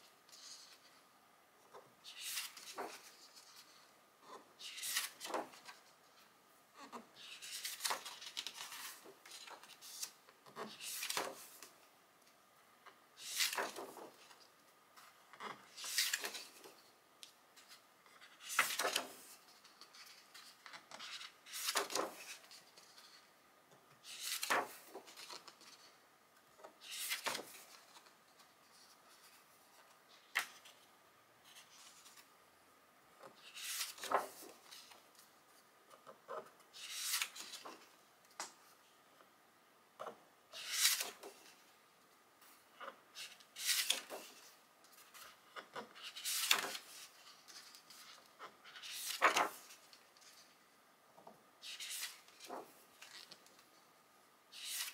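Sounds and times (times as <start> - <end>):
book pages turning: 2.0 - 3.8, 4.6 - 5.9, 6.9 - 11.7, 13.2 - 16.8, 17.6 - 23.2, 24.0 - 25.9, 26.6 - 32.3, 33.2 - 35.2, 36.0 - 37.9, 40.0 - 41.6, 42.8 - 50.5, 51.6 - 53.7, 54.5 - 54.9.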